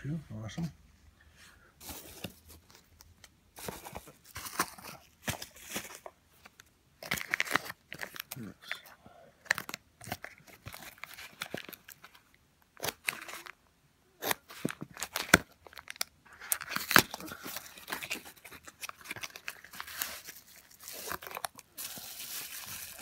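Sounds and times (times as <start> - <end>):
bubble wrap crinkling: 1.8 - 8.8, 9.4 - 13.6, 14.2 - 23.0
cardboard box torn open: 14.2 - 23.0.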